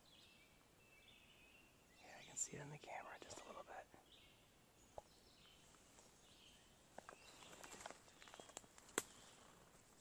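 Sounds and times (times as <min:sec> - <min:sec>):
soft ticks and rustles: 0:02.2 - 0:03.8, 0:06.9 - 0:10.0.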